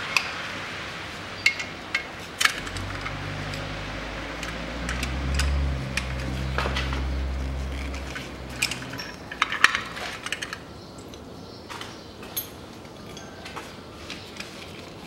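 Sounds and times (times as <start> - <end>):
low steady hum: 2.6 - 10.5.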